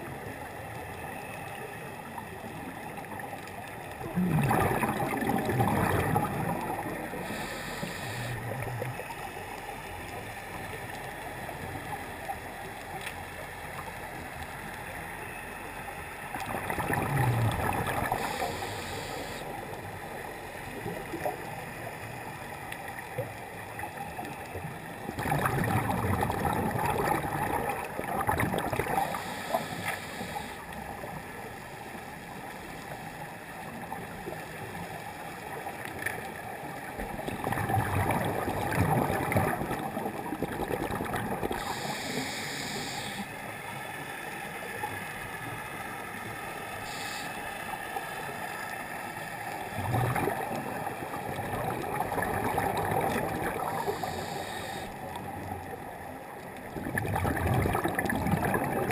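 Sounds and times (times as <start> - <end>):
steady underwater hum: 0.0 - 58.9
bubbling exhaust bursts: 4.0 - 8.6, 16.4 - 19.4, 25.2 - 30.4, 49.8 - 54.7, 56.8 - 58.9
regulator hissing inhalations: 7.2 - 8.5, 18.2 - 19.5, 29.1 - 30.6, 41.6 - 43.3, 46.8 - 47.4, 53.8 - 55.0.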